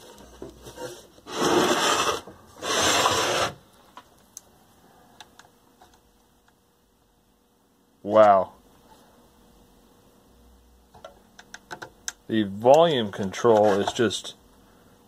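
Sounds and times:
cabinet scraping on workbench: 0.6s - 3.6s, 13.4s - 14.0s.

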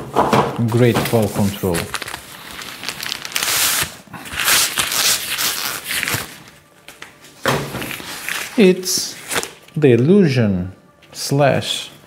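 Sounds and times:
packaging rustling and crinkling: 0.6s - 6.6s.

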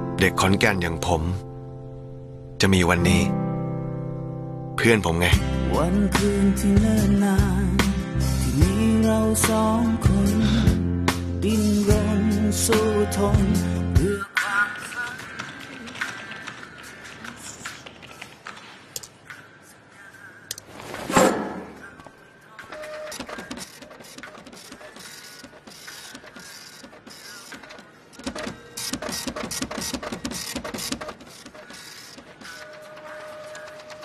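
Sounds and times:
keyboards clicking: 14.9s - 19.2s, 22.7s - 34.0s
printer rattling: 22.7s - 34.0s.

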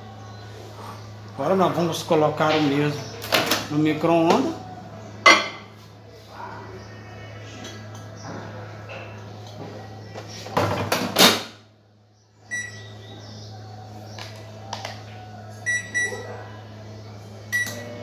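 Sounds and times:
microwave keypad beeps: 12.5s - 12.9s, 15.6s - 16.2s, 17.5s - 17.9s.

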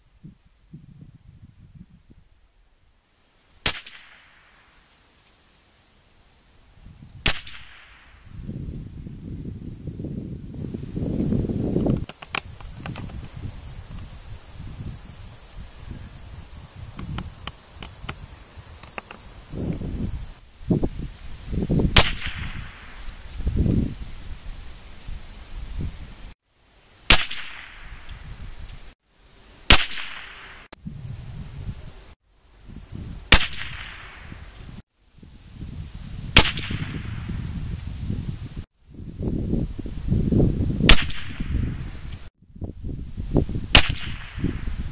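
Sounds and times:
insects trilling: 0.0s - 44.9s
rifle shots: 29.7s - 30.6s.

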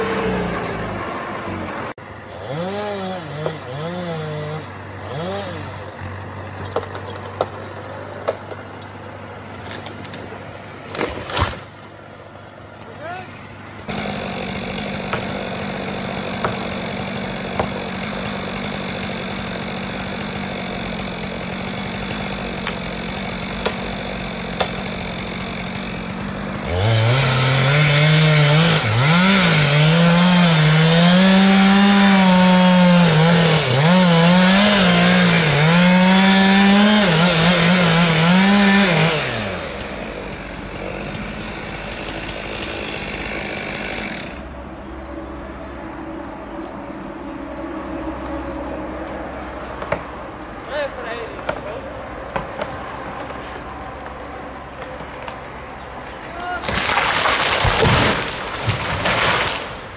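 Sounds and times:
chainsaw sawing through log: 0.0s - 6.6s, 13.0s - 44.6s, 56.1s - 59.9s.

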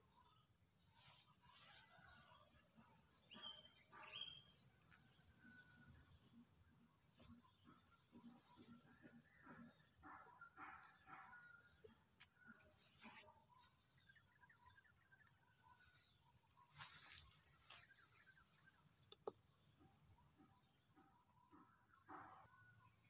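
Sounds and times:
faint bird chirps: 0.0s - 23.0s.

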